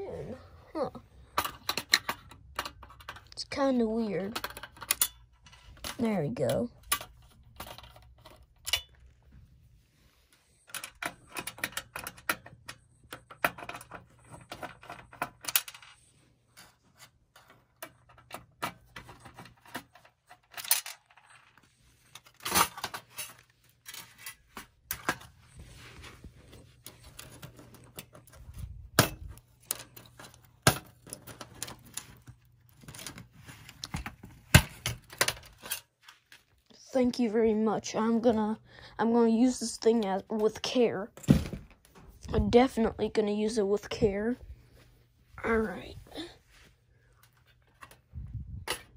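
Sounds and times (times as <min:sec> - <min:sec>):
metal and plastic parts clattering: 0:01.2 - 0:09.3, 0:10.5 - 0:36.5, 0:47.2 - 0:48.9.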